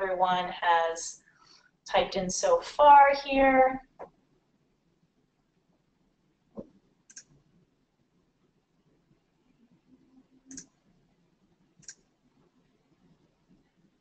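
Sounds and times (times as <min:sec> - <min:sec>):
computer mouse clicks: 0:07.1 - 0:07.4, 0:10.5 - 0:10.8, 0:11.8 - 0:12.1.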